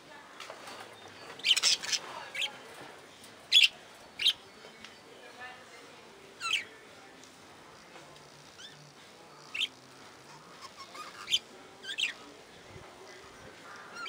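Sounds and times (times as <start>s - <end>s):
budgerigars chirping: 1.4s - 2.5s, 3.5s - 4.4s, 9.5s - 9.7s, 10.4s - 12.2s.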